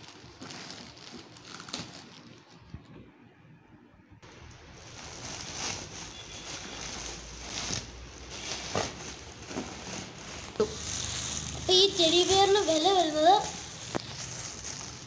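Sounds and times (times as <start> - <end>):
plastic wrap rustling and crinkling: 0.0 - 3.1, 4.2 - 15.0.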